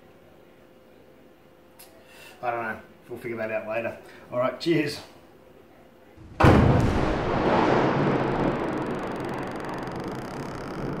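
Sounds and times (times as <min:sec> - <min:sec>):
cinematic boom impact: 0:06.2 - 0:11.0
long low rumble: 0:06.2 - 0:11.0.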